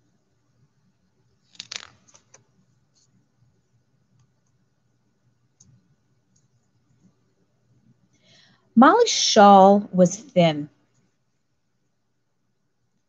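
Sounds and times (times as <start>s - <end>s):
paper page turning rustle: 1.4s - 3.2s.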